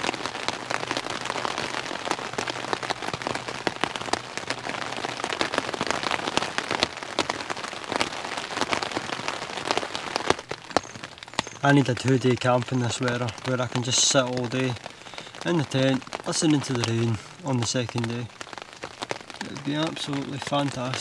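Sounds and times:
rain pattering on tent: 0.0 - 21.0.

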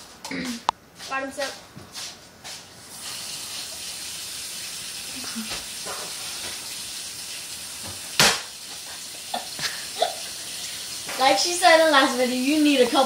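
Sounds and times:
girl coughing and spluttering: 0.3 - 0.7, 9.4 - 10.3
steady hiss: 2.5 - 13.0.

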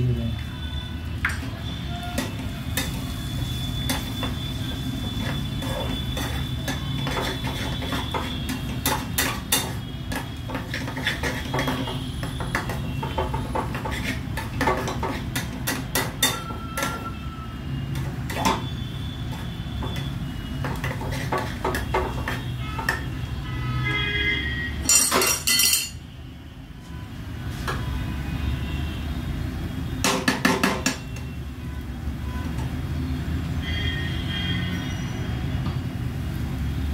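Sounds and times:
fork scraping a steel pan: 5.2 - 12.8, 13.6 - 17.1.

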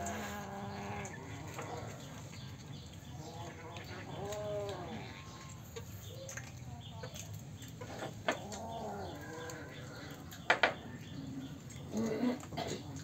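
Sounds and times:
cats growling: 0.0 - 2.4, 3.1 - 5.8, 7.8 - 13.0.

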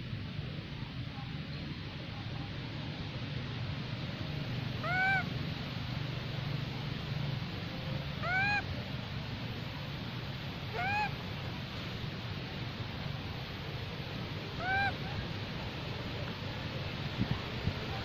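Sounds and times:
macaque coo calls: 4.8 - 5.3, 8.2 - 8.7, 10.7 - 11.1, 14.6 - 15.1.

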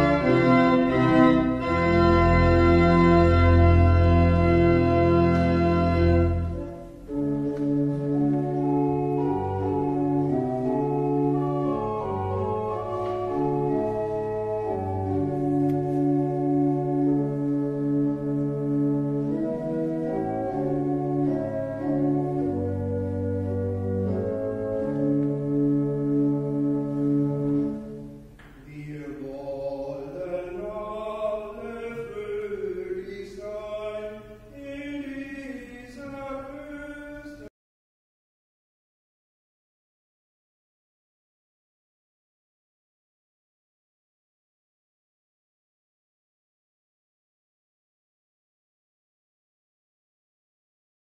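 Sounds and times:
church organ chords: 0.0 - 37.5.

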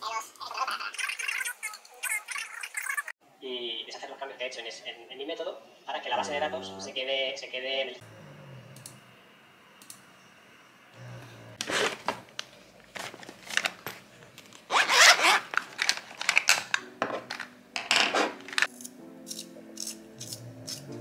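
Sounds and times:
plastic packet crinkling: 14.6 - 17.4
background music: 16.6 - 21.0.

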